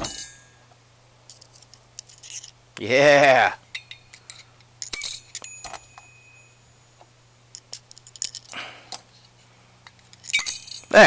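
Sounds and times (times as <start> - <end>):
metal washers clicking and clinking: 0.0 - 0.6, 1.3 - 2.6, 3.7 - 9.0, 9.8 - 11.0.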